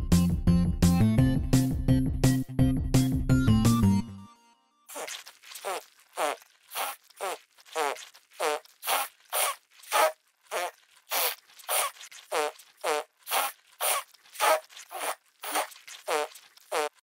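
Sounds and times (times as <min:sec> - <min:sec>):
raspy cartoon creature calls: 0:12.9 - 0:16.9.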